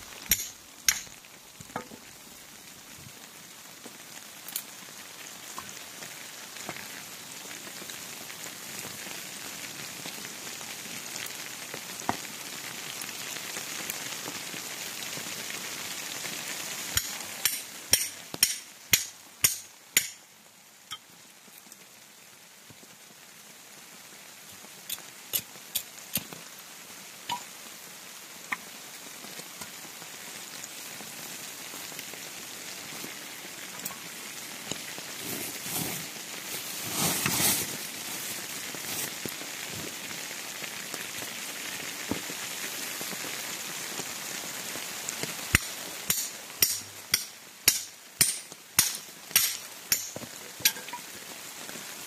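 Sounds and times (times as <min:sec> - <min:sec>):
hatchet splitting log: 0:17.0 - 0:20.2.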